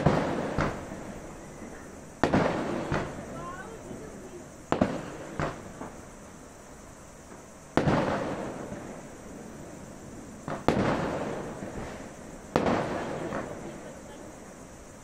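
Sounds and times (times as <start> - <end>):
distant fireworks bangs: 0.0 - 6.4, 7.2 - 15.0.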